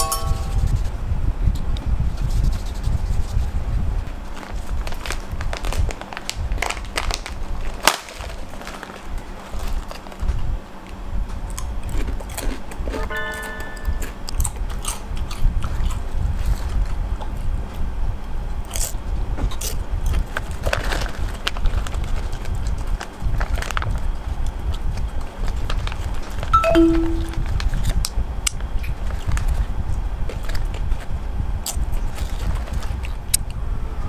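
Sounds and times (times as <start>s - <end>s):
plastic snack bag crinkling: 4.4s - 10.2s, 20.1s - 24.2s, 25.3s - 26.5s
chips crunching being eaten: 11.5s - 13.0s, 18.6s - 28.0s.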